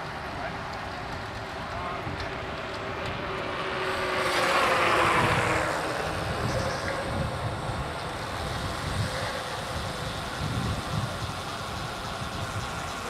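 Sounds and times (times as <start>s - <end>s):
background traffic rumble: 0.0s - 13.0s
vehicle passing close by: 1.7s - 11.0s.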